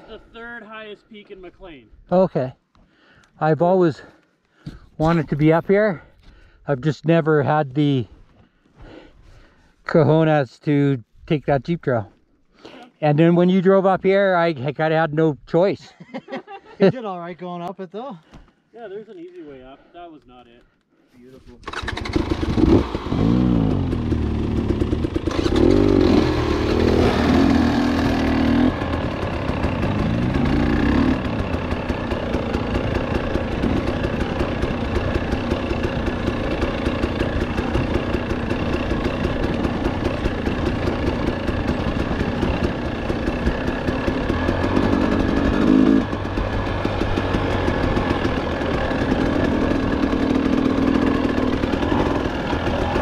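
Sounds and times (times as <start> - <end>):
dirt bike engine revving: 21.6 - 53.0.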